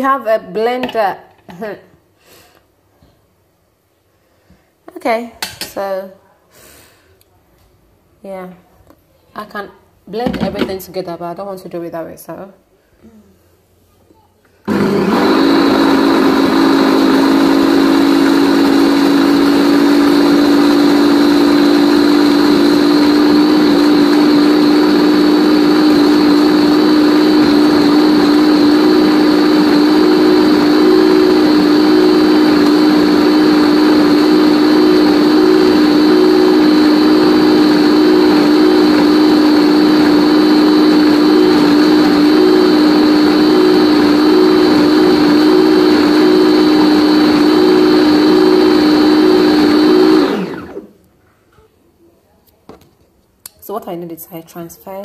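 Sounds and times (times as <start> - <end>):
blender motor running: 14.7 - 51.0.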